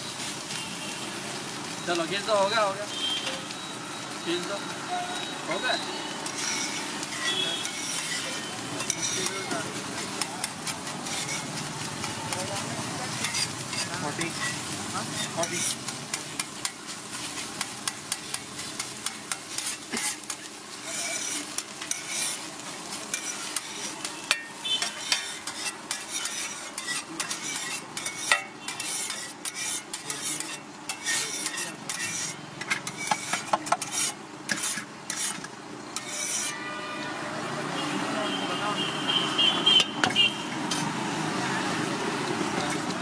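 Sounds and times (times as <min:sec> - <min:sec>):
egg sizzling: 0:00.0 - 0:36.5
metal spatula scraping a pan: 0:06.2 - 0:37.0.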